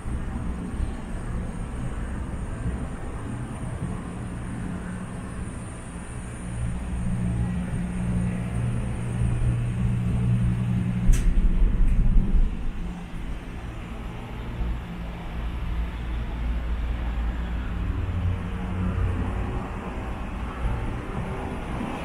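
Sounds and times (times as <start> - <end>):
gondola cabin hum and rumble: 0.0 - 22.0
sharp click: 11.1 - 12.0.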